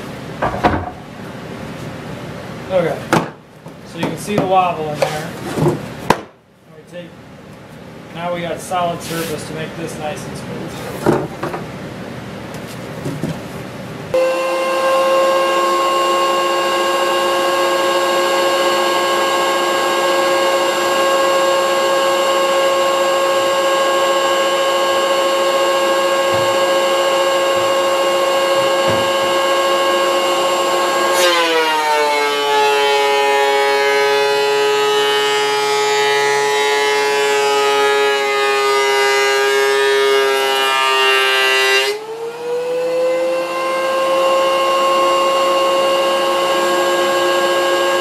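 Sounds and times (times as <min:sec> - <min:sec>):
thickness planer whining: 0:14.1 - 0:48.0.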